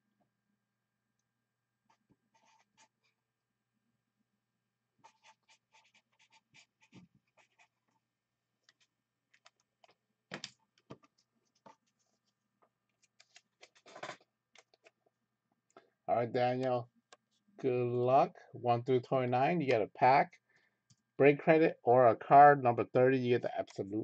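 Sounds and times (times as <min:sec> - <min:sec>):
small clicks and scrapes: 0:05.0 - 0:08.0, 0:08.6 - 0:15.1.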